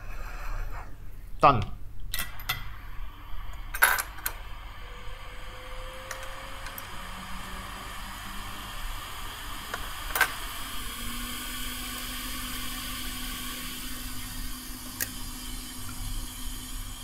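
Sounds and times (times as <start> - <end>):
low hum: 2.1 - 12.9
hot air blower hissing: 2.4 - 17.0.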